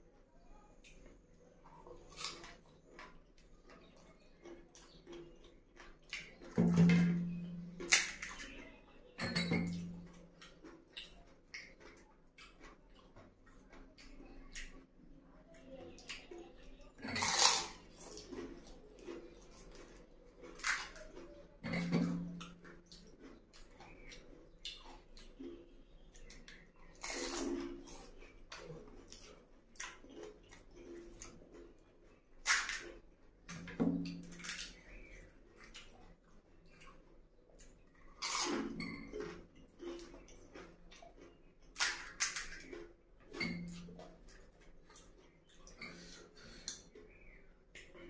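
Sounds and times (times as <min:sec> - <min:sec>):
crisp shells bitten and chewed: 0:01.7 - 0:06.5, 0:17.0 - 0:21.5
soft ticks and crackles: 0:09.8 - 0:16.9.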